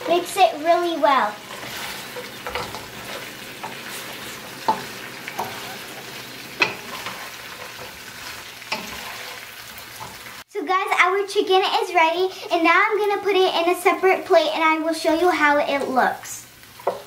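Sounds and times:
spatula knocking and scraping pan: 0.0s - 10.3s, 16.8s - 17.0s
chicken sizzling in a wok: 0.0s - 10.5s, 11.4s - 17.0s.

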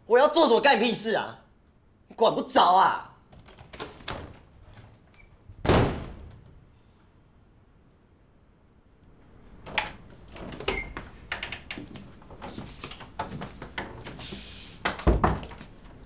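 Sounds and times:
door opening: 3.3s - 6.6s, 9.4s - 14.2s, 14.8s - 16.0s
heavy thump: 5.6s - 6.5s
short hiss: 14.2s - 14.8s.

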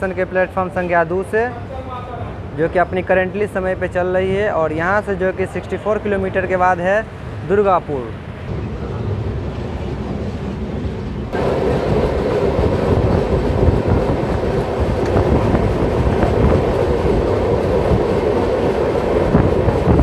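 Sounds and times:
train rushing and rattling by: 8.2s - 20.0s.

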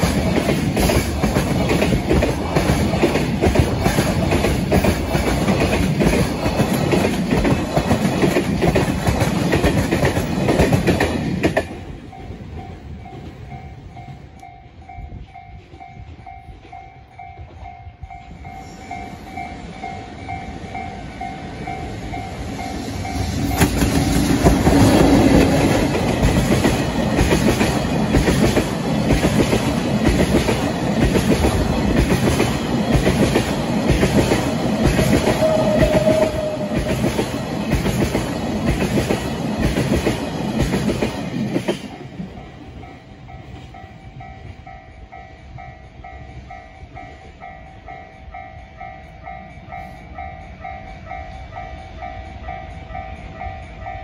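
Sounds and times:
train wheels clattering over rail joints: 0.0s - 13.6s, 23.0s - 42.4s
freight train passing: 0.0s - 54.0s
level-crossing alarm ringing: 35.2s - 37.6s.

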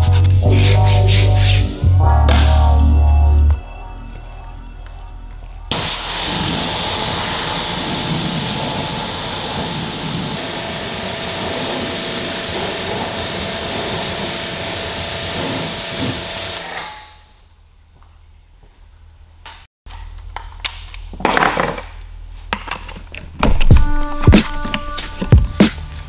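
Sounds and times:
pressure washer spraying water: 5.7s - 16.6s.

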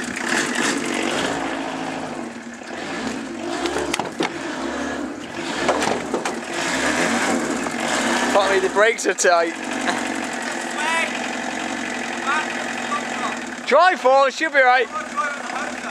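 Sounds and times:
diesel engine running unevenly: 0.0s - 15.9s
sharp engine knocks: 3.6s - 4.4s, 5.3s - 7.9s.

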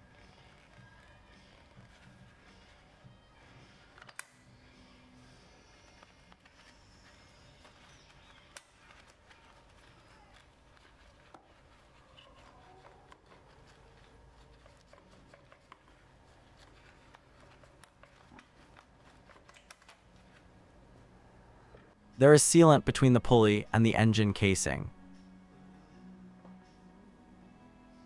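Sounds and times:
clicks and taps of rubber belt: 16.6s - 20.3s.

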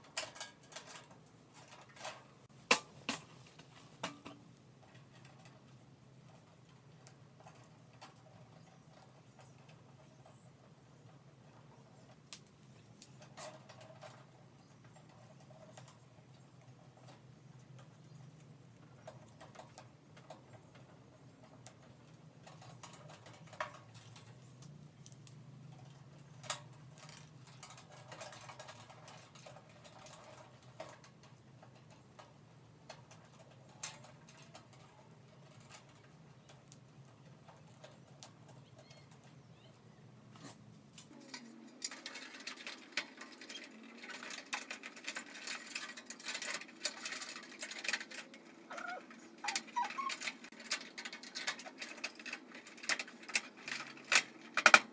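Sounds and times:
hands rustling wire leads: 0.0s - 10.4s, 11.1s - 54.9s.

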